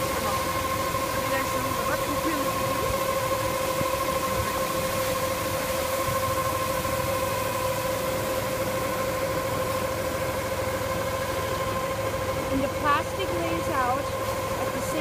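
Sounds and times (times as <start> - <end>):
steady machine whine: 0.0 - 15.0
tractor engine running: 0.0 - 15.0.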